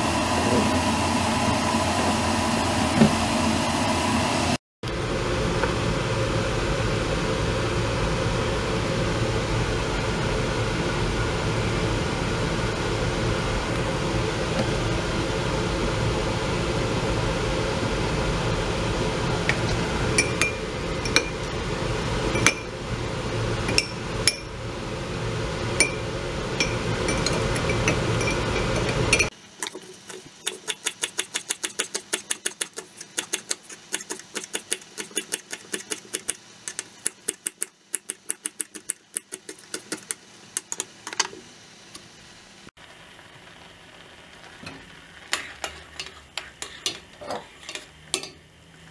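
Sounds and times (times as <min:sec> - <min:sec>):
fan hum: 0:00.0 - 0:48.9
glass clinking on ceramic: 0:20.2 - 0:21.4, 0:26.6 - 0:29.3.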